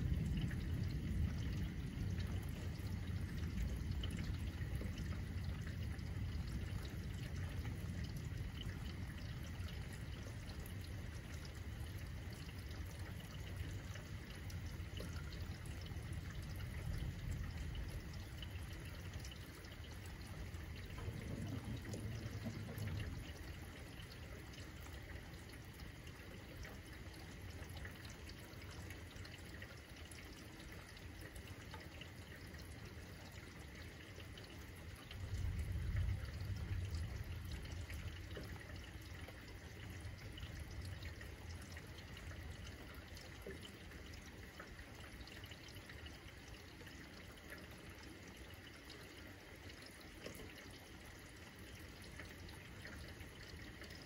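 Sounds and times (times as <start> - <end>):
distant thunder rumbling: 0.0 - 10.6, 12.0 - 24.1, 35.2 - 38.9
steady rain falling: 0.0 - 54.0.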